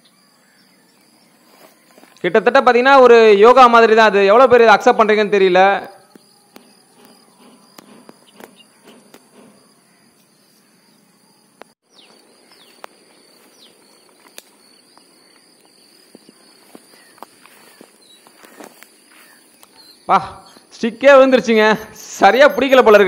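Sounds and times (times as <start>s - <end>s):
insects droning: 0.0s - 23.0s
bird chirps: 5.6s - 23.0s.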